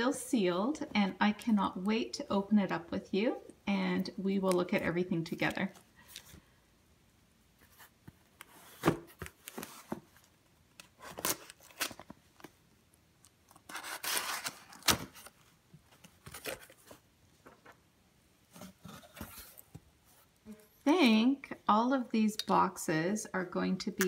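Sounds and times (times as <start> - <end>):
knife slitting packing tape: 13.7 - 15.0
cardboard scraping and rustling: 18.5 - 20.3.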